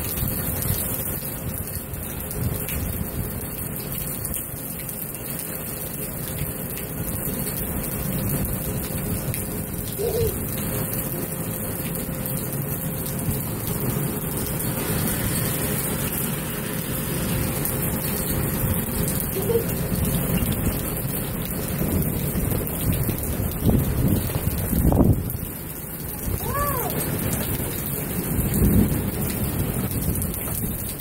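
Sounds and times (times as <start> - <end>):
wind rumbling on microphone: 0.0 - 4.4, 12.4 - 31.0
heavy rain downpour: 0.0 - 31.0.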